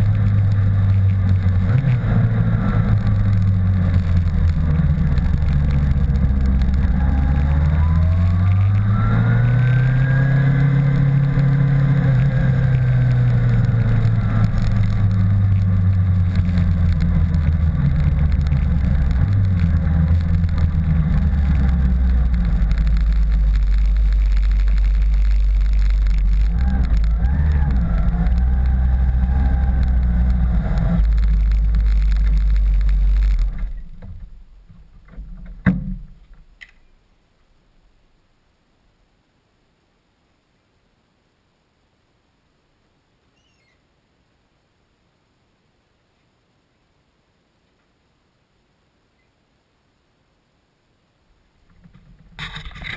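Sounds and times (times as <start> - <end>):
motorcycle engine running: 0.0 - 34.2.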